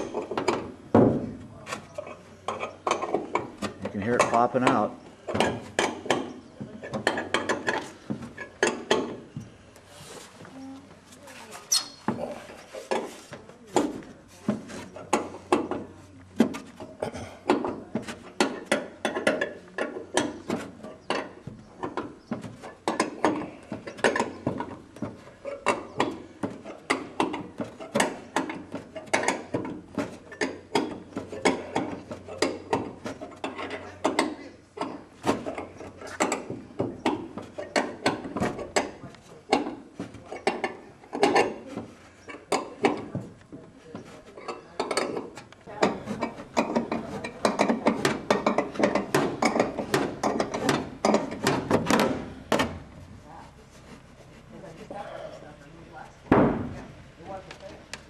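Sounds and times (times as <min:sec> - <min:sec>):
metallic knocks and clicks: 0:44.5 - 0:53.0.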